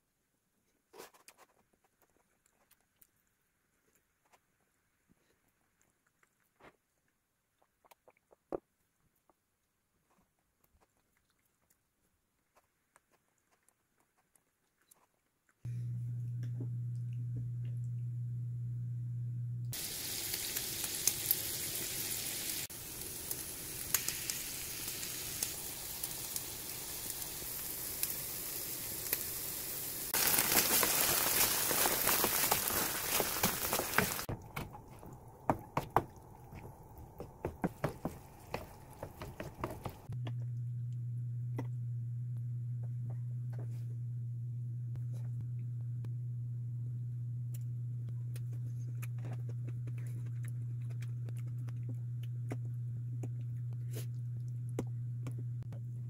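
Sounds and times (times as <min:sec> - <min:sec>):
low hum: 0:15.7 - 0:19.8, 0:40.0 - 0:56.0
food sizzling in a frying pan: 0:19.7 - 0:34.3.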